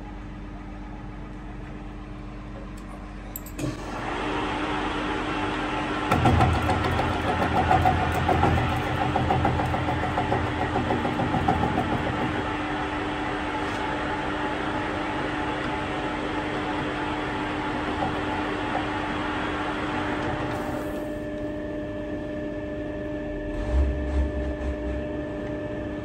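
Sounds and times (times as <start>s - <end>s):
lathe motor and gear hum: 2.7s - 26.0s.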